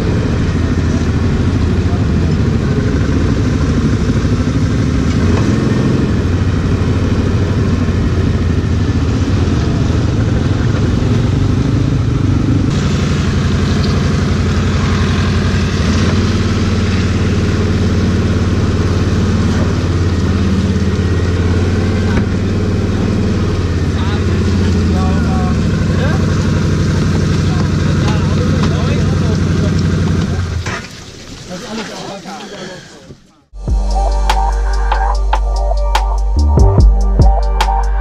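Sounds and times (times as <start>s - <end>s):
atv engine drone: 0.0s - 30.8s, 33.6s - 38.0s.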